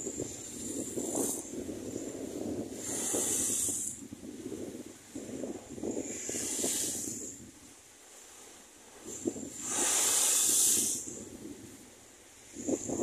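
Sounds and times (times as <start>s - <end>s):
low wash of water: 0.0s - 13.0s
waves breaking against a wall: 0.0s - 13.0s
spray hissing: 9.6s - 11.0s.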